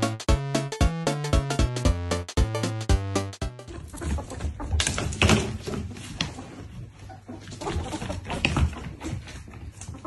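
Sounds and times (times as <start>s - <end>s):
paws scampering on wooden floor: 3.7s - 10.0s.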